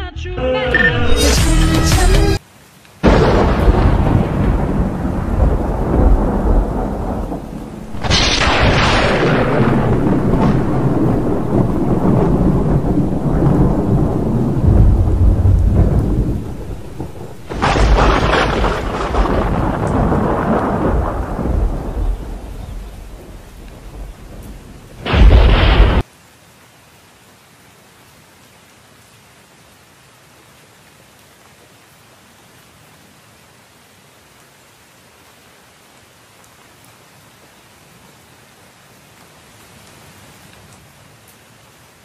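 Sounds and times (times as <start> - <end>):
heavy rain: 0.7 - 42.0
thunder rumbling: 3.0 - 26.0.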